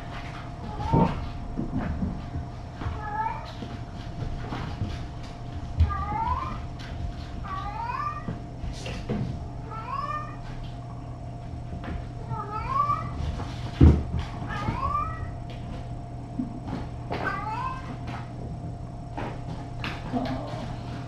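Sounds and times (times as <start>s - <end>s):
steady electrical hum: 0.0s - 21.0s
cat meowing: 5.8s - 6.6s, 7.5s - 8.3s, 9.7s - 10.4s, 17.2s - 17.9s.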